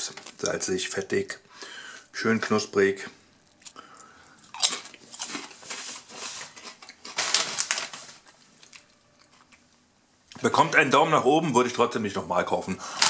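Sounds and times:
crisp being bitten and chewed: 3.4s - 5.6s.

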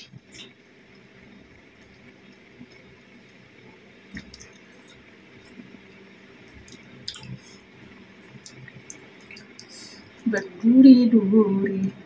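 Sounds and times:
quiet chewing: 4.1s - 10.3s.

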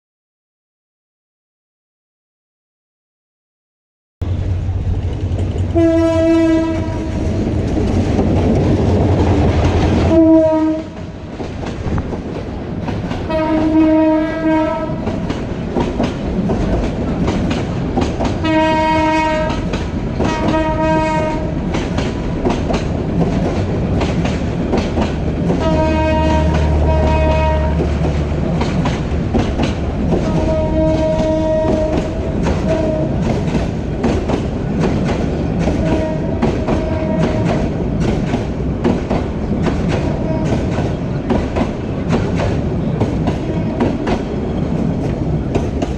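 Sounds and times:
train rumble and wheels clacking: 4.2s - 45.9s
locomotive horn blasts: 5.7s - 7.3s, 10.1s - 11.0s, 13.3s - 15.1s, 18.4s - 21.6s, 25.6s - 27.9s, 30.2s - 33.2s, 35.8s - 37.5s, 40.0s - 40.6s.

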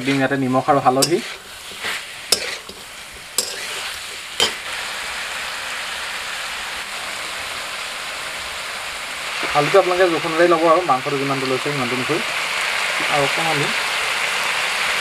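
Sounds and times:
chicken sizzling in oil: 0.0s - 15.0s
spatula scraping and tapping pan: 0.9s - 4.7s.

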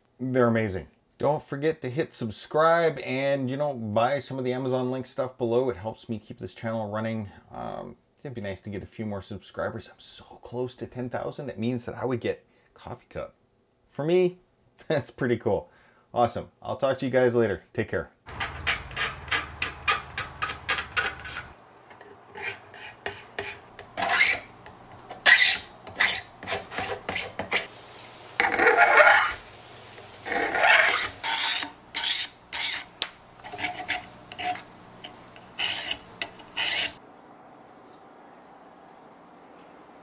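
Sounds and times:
scraper shaving plastic: 28.4s - 29.4s, 30.2s - 37.0s.

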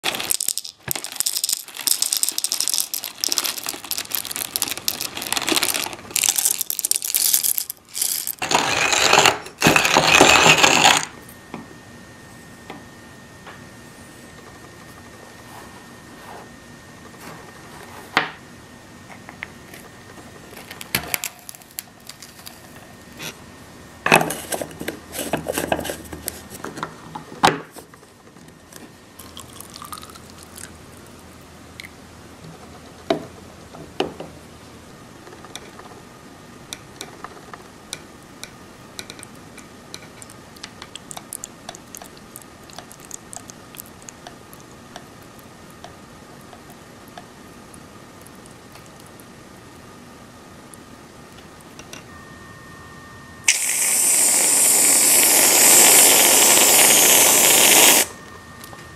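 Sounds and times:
plastic parts clattering: 0.0s - 11.1s
espresso dripping into cup: 29.2s - 30.7s.

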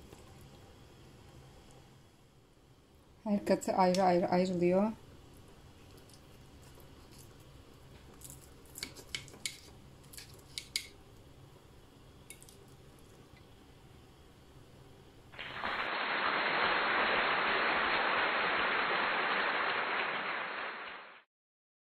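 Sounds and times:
fork clicking against plate: 8.8s - 11.0s
loud steady hiss: 13.6s - 21.2s.

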